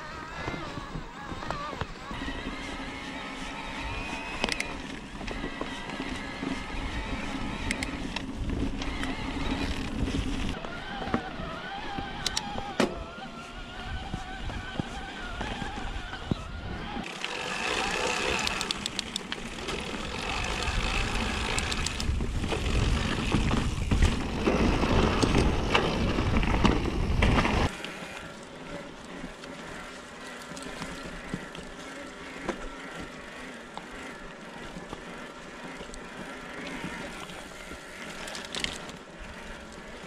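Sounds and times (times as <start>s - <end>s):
electric bike motor whining: 0.0s - 40.0s
trail rumble: 0.0s - 40.0s
wind: 0.0s - 40.0s
clicks: 7.6s - 9.7s, 11.9s - 12.9s, 18.2s - 19.8s.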